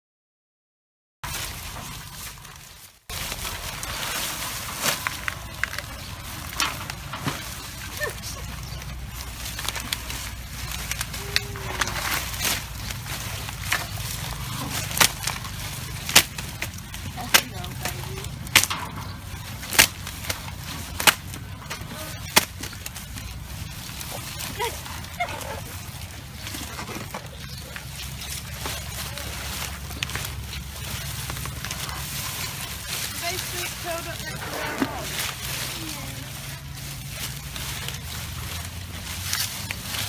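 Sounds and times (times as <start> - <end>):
leaves and straw rustling: 1.2 - 40.0
low steady rumble: 1.3 - 40.0
sharp cracks: 18.2 - 23.2.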